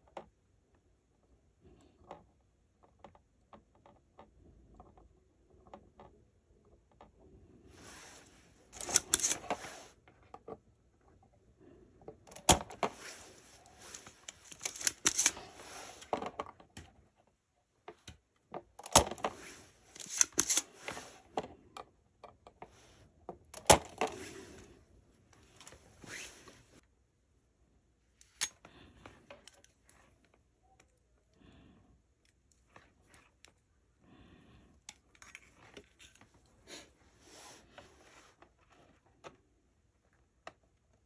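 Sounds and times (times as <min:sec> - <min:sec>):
hand tools scraping and rattling: 0:12.8 - 0:16.2, 0:19.3 - 0:21.2.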